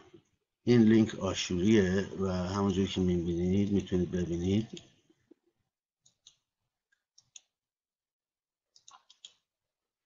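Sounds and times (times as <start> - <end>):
computer mouse clicks: 4.6 - 5.0, 6.0 - 7.6, 8.7 - 9.5.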